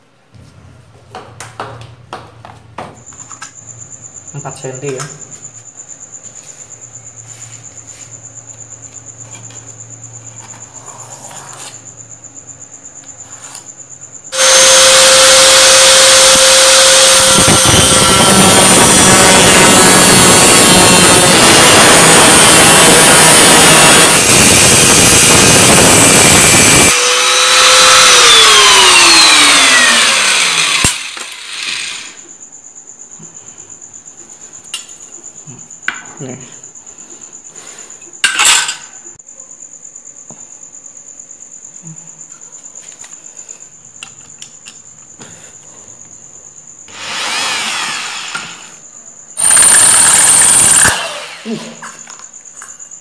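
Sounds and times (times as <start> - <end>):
angle grinder cutting steel: 14.3 - 32.2, 46.9 - 48.7, 49.4 - 51.8.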